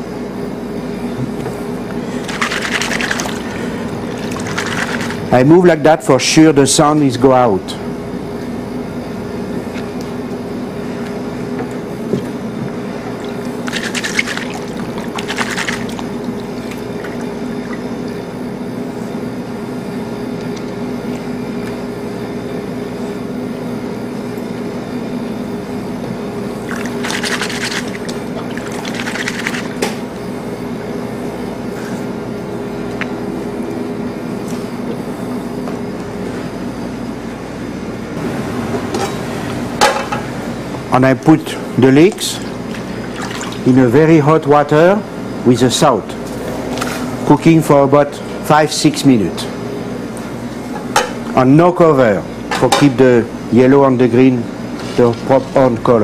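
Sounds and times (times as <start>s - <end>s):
water sloshing in basin: 2.0s - 5.3s, 12.1s - 18.2s, 26.6s - 30.1s, 41.7s - 44.0s.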